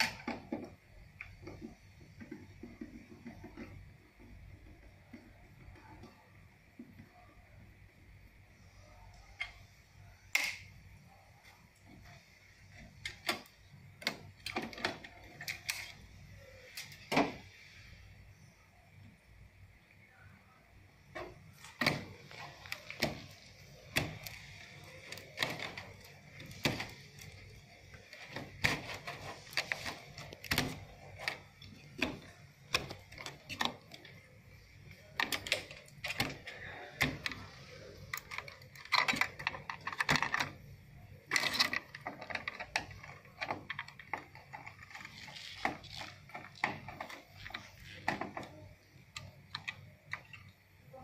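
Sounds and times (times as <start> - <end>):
cable connectors being pulled: 12.0 - 17.6, 21.2 - 50.6.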